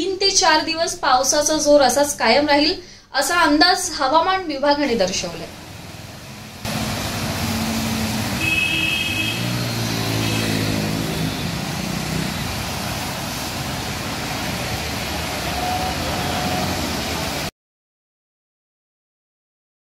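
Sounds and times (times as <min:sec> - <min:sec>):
heavy rain hissing: 0:05.4 - 0:17.5
tyres spraying water: 0:05.4 - 0:17.5
engine passing close: 0:05.5 - 0:17.5
vehicle horn: 0:07.5 - 0:11.8.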